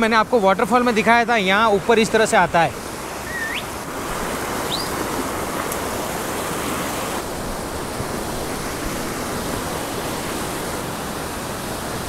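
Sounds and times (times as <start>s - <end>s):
stream rushing over rocks: 0.0s - 12.0s
high rising chirp: 3.2s - 3.7s.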